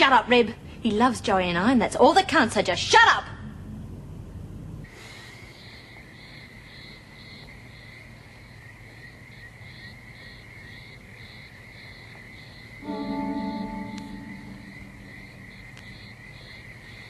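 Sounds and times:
crickets trilling: 5.2s - 17.0s
pulsing cricket trill: 9.4s - 17.0s.

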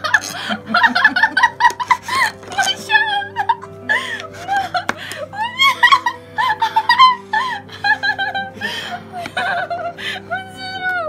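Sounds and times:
high-pitched voices laughing: 0.0s - 10.0s
background music with low notes: 0.0s - 11.0s.

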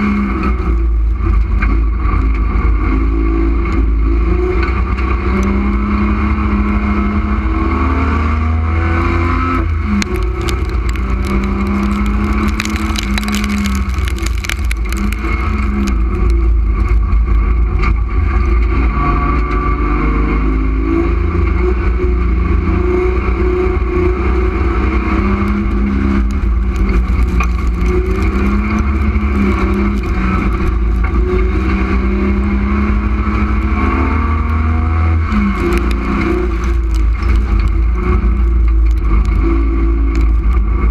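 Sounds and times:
race car engine rumbling: 0.0s - 40.9s
rattling and clicking: 9.9s - 17.6s, 35.5s - 39.4s.

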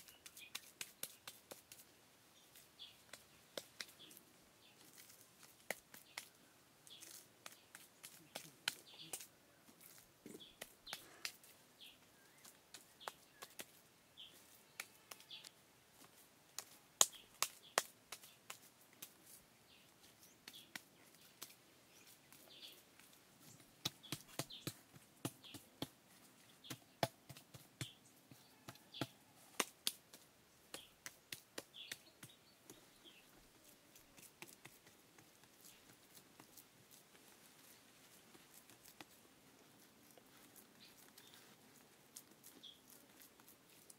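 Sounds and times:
sharp taps and clicks: 3.1s - 4.0s, 16.6s - 19.1s, 23.8s - 26.0s, 28.7s - 32.8s.

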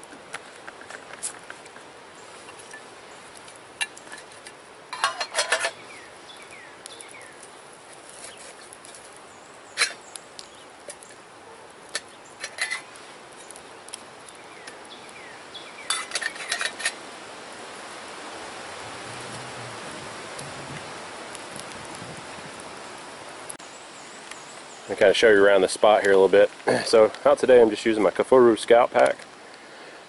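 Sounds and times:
background hiss: 0.0s - 30.0s
metal cup and lid clinking: 3.8s - 5.8s, 9.8s - 10.0s, 11.9s - 12.9s, 15.9s - 17.0s.

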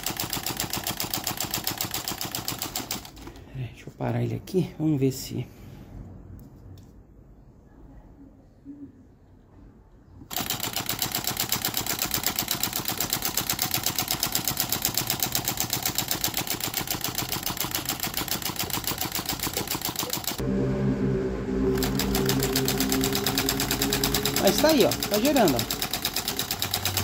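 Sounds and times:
low steady hum: 20.4s - 26.8s.

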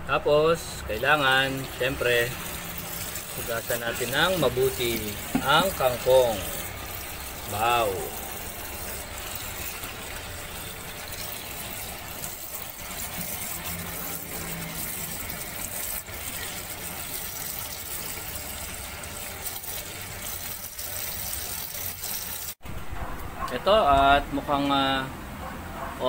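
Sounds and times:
hand stirring leaves in water: 0.8s - 22.6s
tap water splashing into a bowl: 4.8s - 6.4s.

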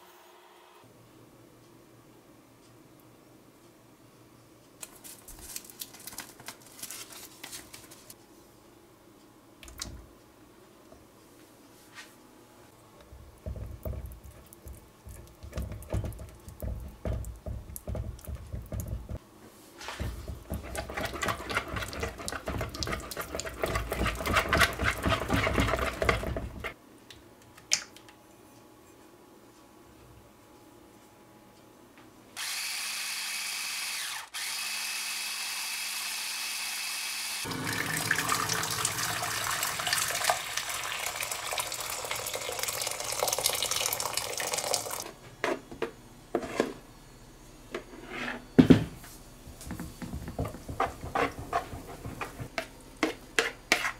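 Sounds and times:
paper sachet crinkling: 4.8s - 8.2s
whisk beating eggs in bowl: 20.0s - 26.8s, 50.3s - 53.9s.

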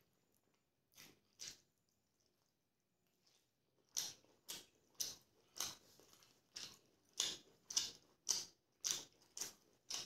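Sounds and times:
chewing chicken drumstick: 3.2s - 10.0s.

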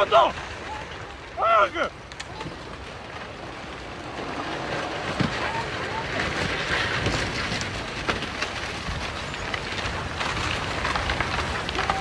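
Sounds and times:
landslide rushing rumble: 0.0s - 12.0s
rocks cracking and snapping: 2.0s - 12.0s.

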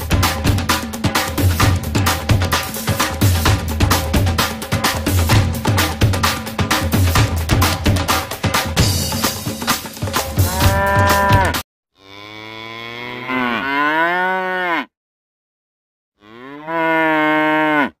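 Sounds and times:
drum-backed music: 0.0s - 11.6s
cow mooing: 10.4s - 14.9s, 16.2s - 18.0s.

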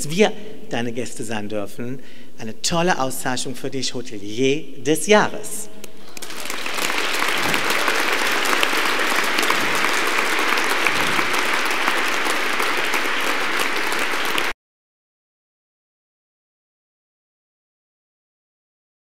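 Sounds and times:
audience applauding: 6.0s - 14.6s.

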